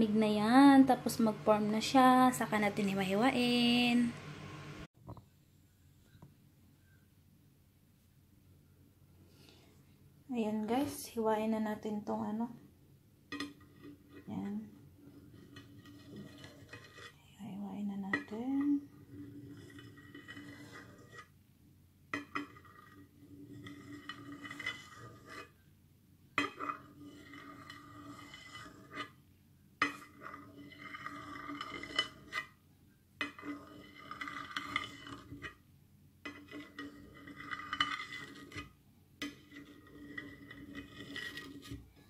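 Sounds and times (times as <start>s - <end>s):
knife scraping on a dish: 13.3s - 17.2s, 18.1s - 21.3s, 22.2s - 25.6s, 26.4s - 29.2s, 29.8s - 32.6s, 33.2s - 35.6s, 36.2s - 41.9s.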